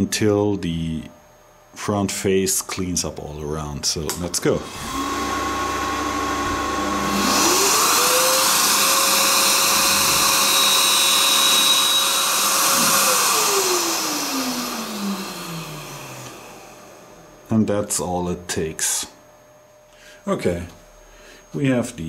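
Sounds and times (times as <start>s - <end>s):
grinder motor whine: 4.4s - 19.0s
hiss of tool bit being ground: 7.2s - 15.1s.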